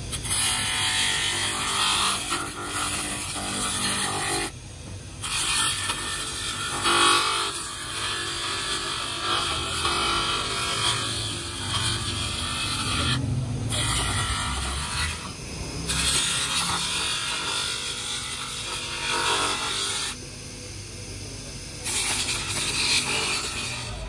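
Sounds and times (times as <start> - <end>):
grinder motor hum: 0.0 - 24.0
plastic grinding on bench grinder: 5.2 - 20.2.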